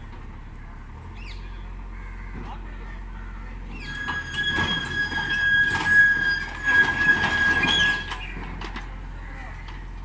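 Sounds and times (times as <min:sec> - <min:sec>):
excavator high-pitched squeal: 0:03.7 - 0:08.5
metal knocks and clanks: 0:03.9 - 0:08.9.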